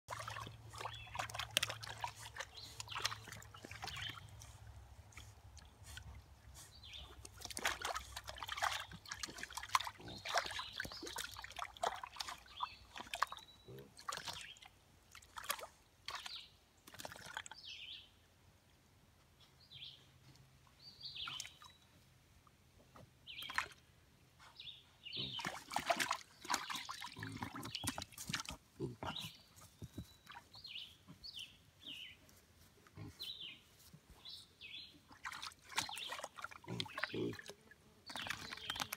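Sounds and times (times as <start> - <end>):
water sloshing and splashing: 0.1 - 17.6, 25.3 - 30.7, 35.0 - 38.9.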